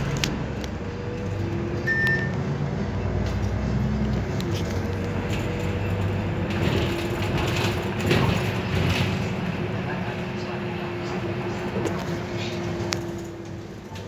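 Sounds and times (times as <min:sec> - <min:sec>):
bus engine and drivetrain hum: 0:00.0 - 0:14.0
short high beep: 0:01.8 - 0:02.4.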